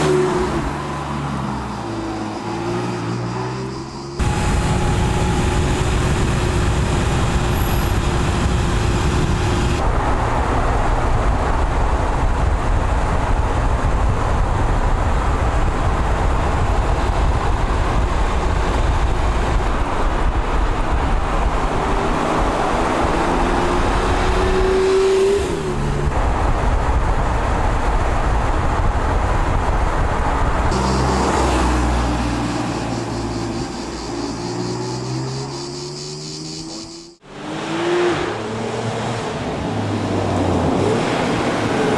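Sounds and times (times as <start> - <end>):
road and wind noise: 0.0 - 41.9
car engine running at speed: 4.2 - 37.4.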